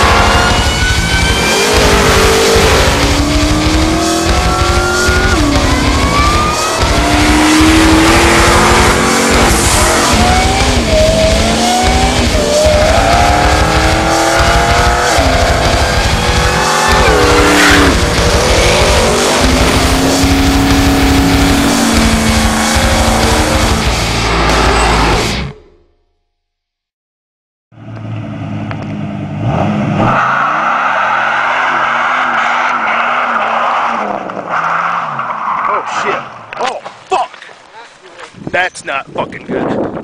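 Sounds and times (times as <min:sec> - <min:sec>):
music with heavy beat: 0:00.0 - 0:25.5
truck engine accelerating hard: 0:00.0 - 0:25.6, 0:27.8 - 0:35.4.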